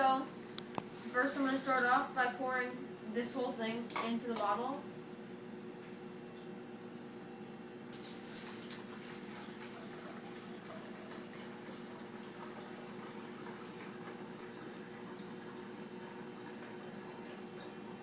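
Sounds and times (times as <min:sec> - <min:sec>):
water pouring into plastic bottle: 0:07.9 - 0:17.7.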